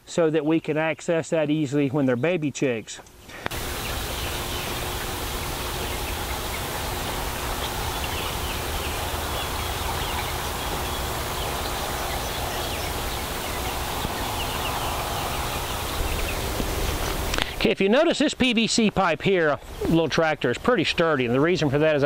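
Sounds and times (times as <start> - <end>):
background hiss: 0.0 - 22.0
chicks peeping and chirping: 3.3 - 17.4.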